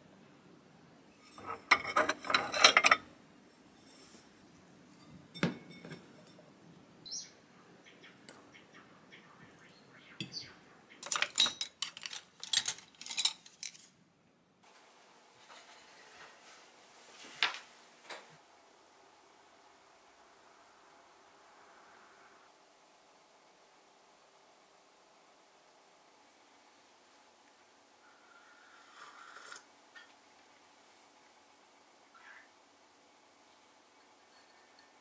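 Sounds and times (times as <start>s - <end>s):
fork scraping glass container: 1.2s - 3.0s
light clinks of tableware: 4.9s - 6.5s.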